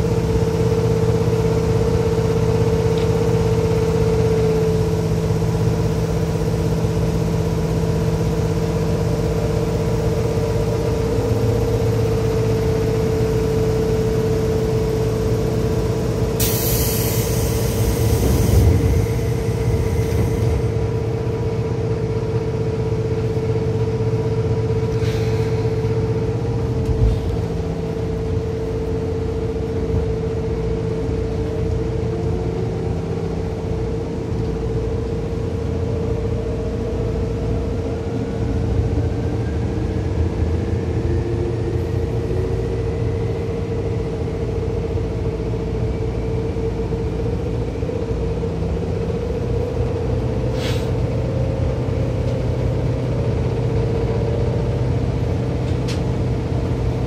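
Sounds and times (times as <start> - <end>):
wheels rumbling on rail: 0.0 - 57.0
electric train motor whine: 3.1 - 24.8
brief hiss: 50.5 - 51.0.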